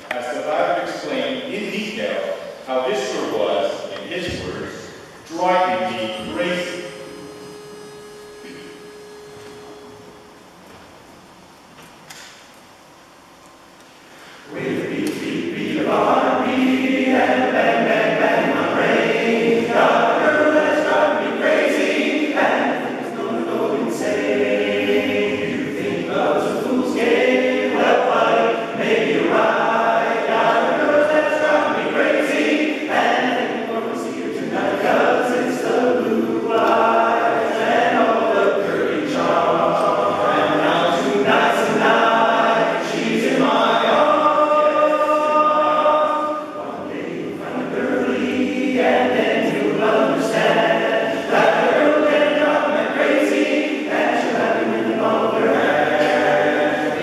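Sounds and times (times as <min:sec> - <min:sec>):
male voice choir singing: 0:14.5 - 0:57.0.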